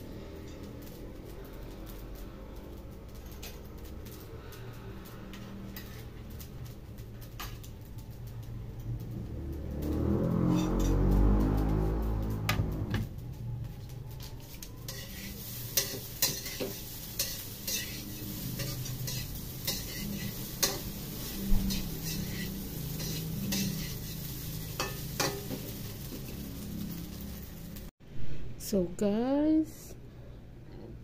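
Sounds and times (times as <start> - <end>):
rice sizzling: 0.0 - 27.9
metal spatula scraping a wok: 5.4 - 6.2, 10.4 - 11.2, 14.4 - 27.5.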